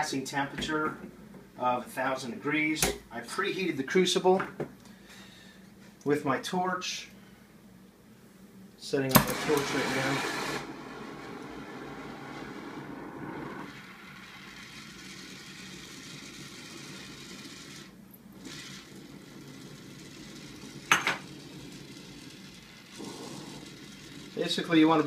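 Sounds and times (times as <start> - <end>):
torch flame hissing: 9.2 - 25.0.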